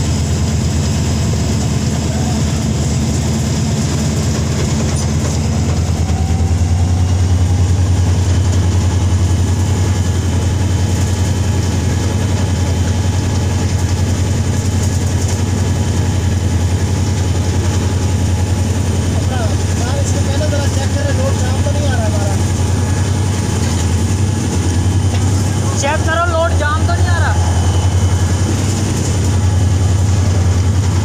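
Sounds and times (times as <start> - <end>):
diesel locomotive engine droning: 0.0 - 31.0.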